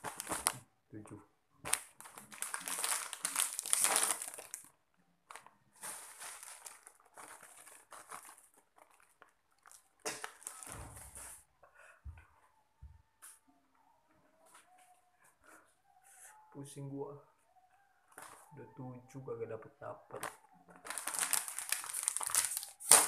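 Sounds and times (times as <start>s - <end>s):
plastic snack packets crinkling: 0.0s - 0.6s, 1.6s - 11.2s, 18.1s - 18.6s, 20.1s - 23.0s.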